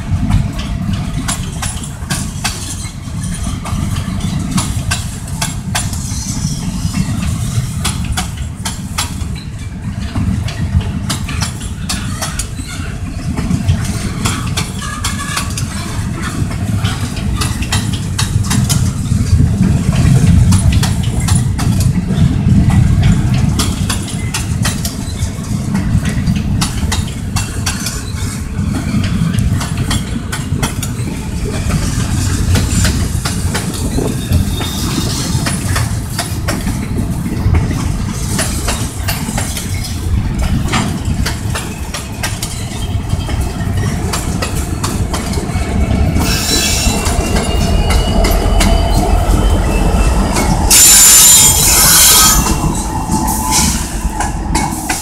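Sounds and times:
freight train rumbling past: 0.0 - 55.0
wheels clicking and clanking: 0.0 - 55.0
high wheel squeal: 5.9 - 7.2, 33.8 - 35.6, 46.2 - 55.0.

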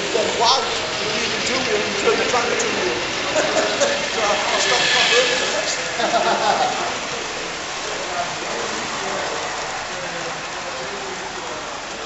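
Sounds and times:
model train wheels rattling on rails: 0.0 - 11.1.

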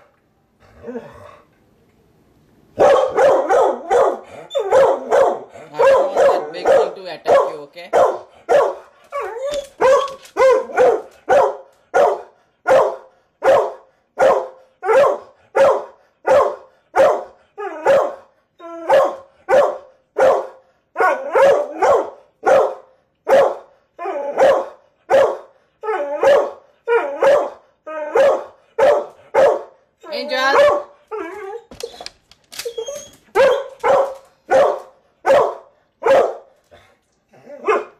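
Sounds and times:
dog barking: 2.8 - 8.9, 9.8 - 18.3, 18.9 - 25.5, 26.2 - 29.8, 30.4 - 31.0, 33.4 - 36.6, 37.6 - 37.9.

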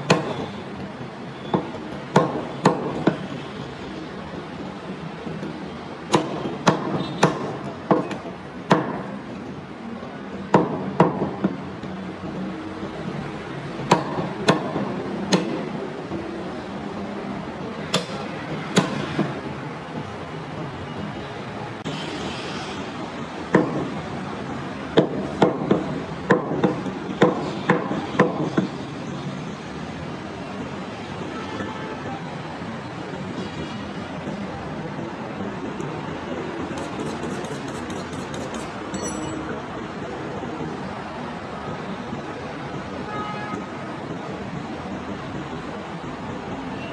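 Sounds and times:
cleaver chopping meat on wood: 0.1 - 0.4, 1.5 - 3.2, 6.1 - 9.0, 13.9 - 15.6.

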